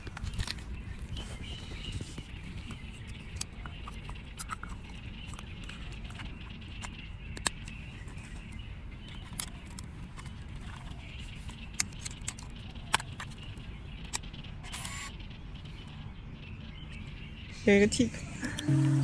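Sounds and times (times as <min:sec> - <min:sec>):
camera clicks: 0:14.1 - 0:15.1
camera film motor whir: 0:14.6 - 0:15.1.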